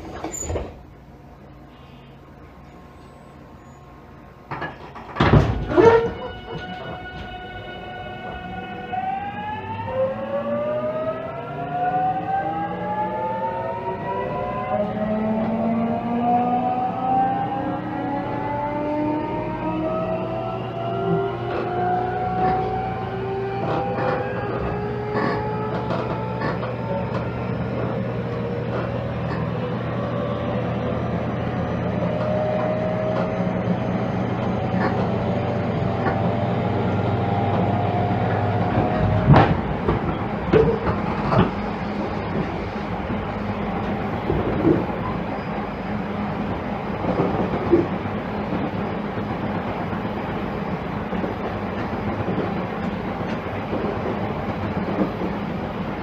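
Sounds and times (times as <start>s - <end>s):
electric train inverter whine: 0.0s - 56.0s
wheel and rail rumble: 0.0s - 56.0s
clacks over rail joints: 23.6s - 29.5s, 34.4s - 35.3s, 38.3s - 43.2s, 43.8s - 45.2s, 47.0s - 48.8s, 51.1s - 56.0s.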